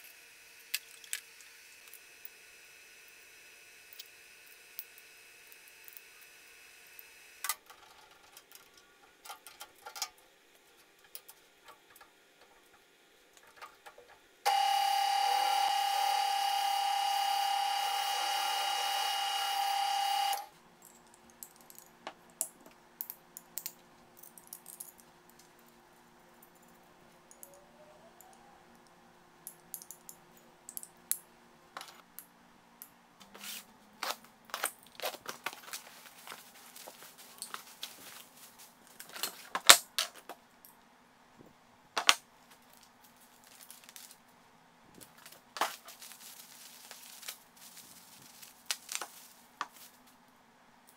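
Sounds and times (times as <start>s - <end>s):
drill press cutting steel: 14.5s - 20.5s.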